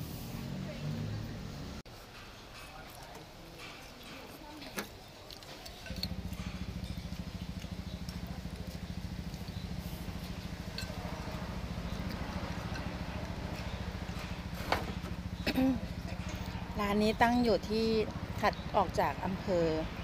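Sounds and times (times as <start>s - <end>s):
engine running with low throb: 5.8s - 20.0s.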